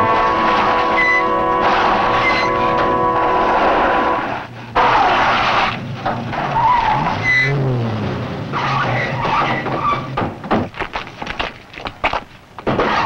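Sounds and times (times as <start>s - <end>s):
car engine revving: 0.0s - 8.9s
car tyres squealing and skidding: 0.0s - 10.3s, 12.7s - 13.0s.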